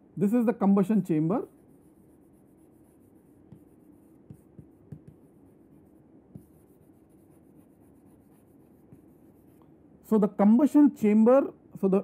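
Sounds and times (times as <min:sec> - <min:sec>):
chalk scratching on chalkboard: 0:01.4 - 0:09.6
chalk tapping board: 0:01.6 - 0:09.7.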